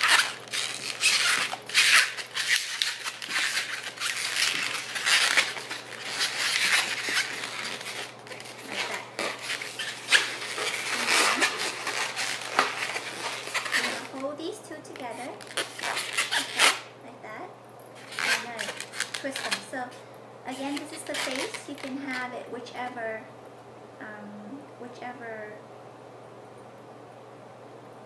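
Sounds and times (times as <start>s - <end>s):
balloons rubbing and scraping: 0.0s - 14.3s, 15.0s - 16.8s, 18.0s - 19.7s, 20.6s - 21.9s.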